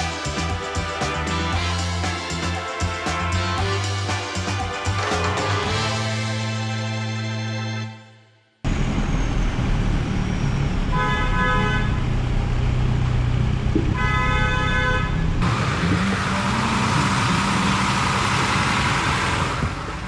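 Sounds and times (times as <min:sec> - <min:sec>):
engine and road rumble: 0:08.6 - 0:20.0
car horn honks: 0:10.9 - 0:12.1, 0:13.9 - 0:15.3.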